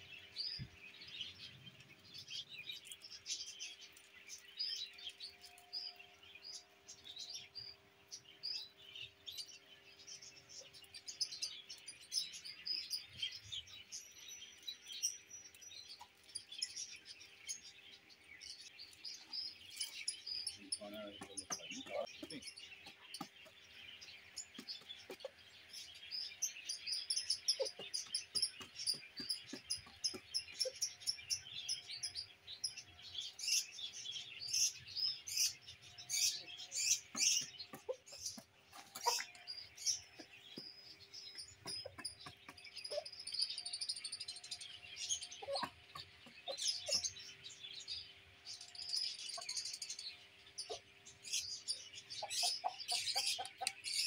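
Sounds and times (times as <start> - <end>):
small birds chirping: 0.0 - 54.0
chicken clucking: 24.5 - 25.4, 27.4 - 30.8, 36.8 - 40.6, 45.4 - 47.1, 52.2 - 54.0.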